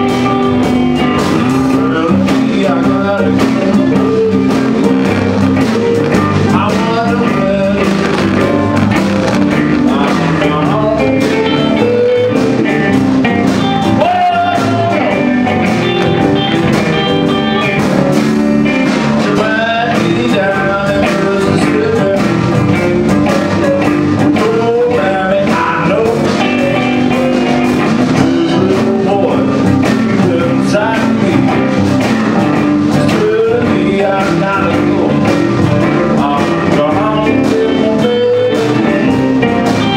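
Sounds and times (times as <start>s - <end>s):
bass: 0.0s - 39.9s
drum kit: 0.0s - 39.9s
electric guitars: 0.0s - 39.9s
keyboard: 0.0s - 39.9s.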